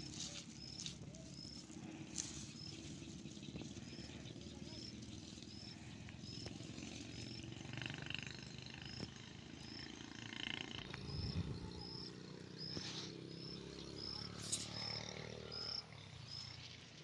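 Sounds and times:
grass rustling: 0.0 - 7.6, 12.7 - 13.3.

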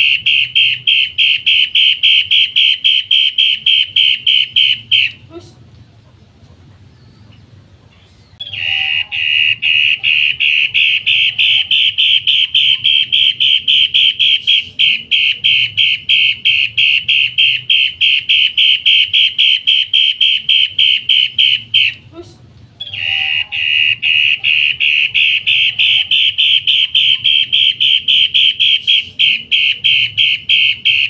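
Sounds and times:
bird calling harsh notes: 0.0 - 5.3, 6.0 - 22.1, 22.8 - 31.0.

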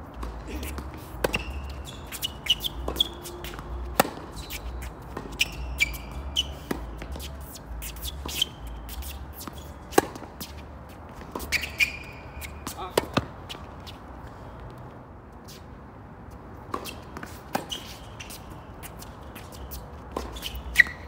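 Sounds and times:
sneakers squeaking on court: 0.1 - 14.0, 16.7 - 21.0
racket striking tennis ball: 0.2 - 10.6
tennis ball bouncing: 0.2 - 14.0, 16.7 - 21.0.

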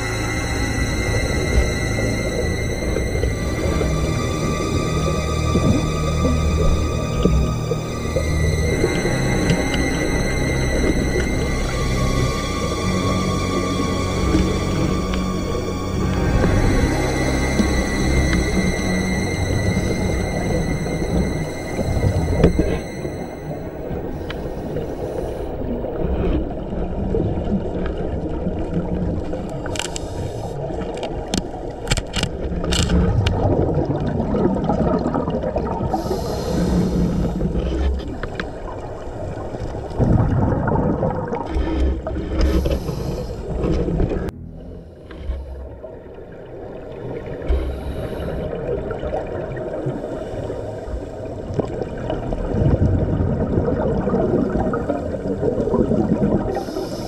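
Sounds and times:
steady low rumble: 0.0 - 31.8, 32.5 - 57.0
bubbles hissing underwater: 33.1 - 44.3, 44.9 - 57.0.

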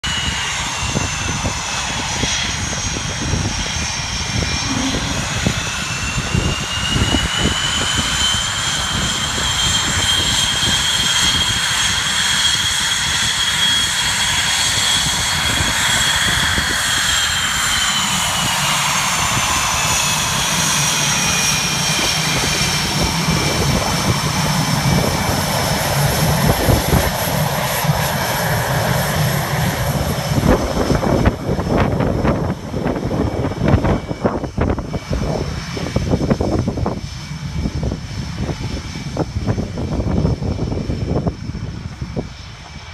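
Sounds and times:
jet engine whine: 0.0 - 42.9
jet roar: 0.0 - 42.9
low rumble: 0.6 - 9.4, 21.5 - 42.9.

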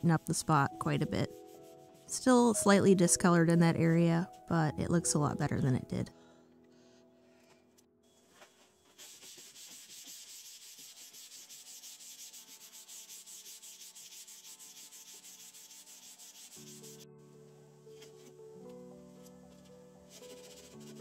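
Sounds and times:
music: 0.0 - 21.0
hand sanding wood: 0.4 - 2.3, 8.9 - 17.0, 20.1 - 21.0.

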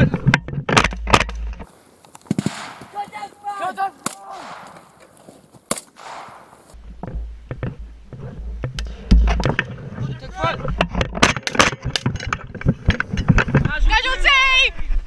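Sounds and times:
rifle shots: 2.3 - 3.1, 4.0 - 5.0, 5.7 - 6.7
distant shouting: 2.5 - 5.1.

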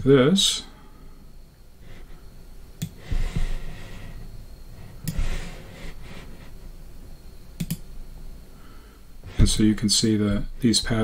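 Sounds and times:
man breathing out: 0.7 - 6.8.

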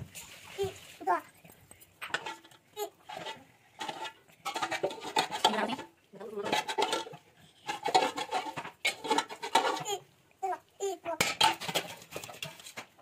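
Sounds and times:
metal spoon scraping a pot: 2.0 - 10.1, 11.2 - 12.9.

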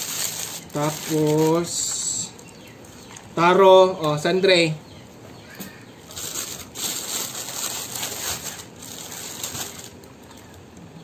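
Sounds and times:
plastic packaging crinkling: 0.0 - 2.7, 6.0 - 10.6.

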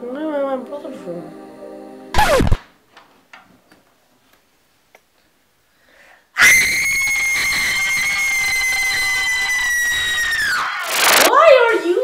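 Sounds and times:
teenagers screaming: 6.4 - 11.8.

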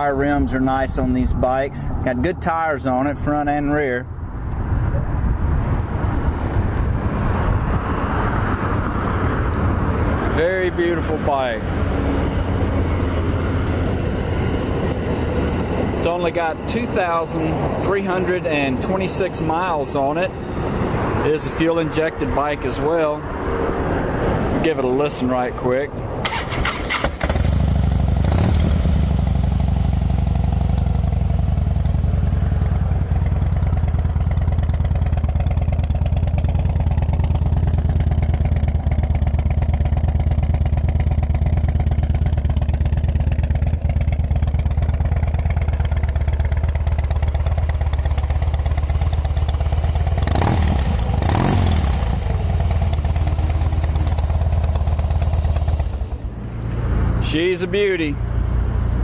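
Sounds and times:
motorcycle engine idling: 27.1 - 56.4.

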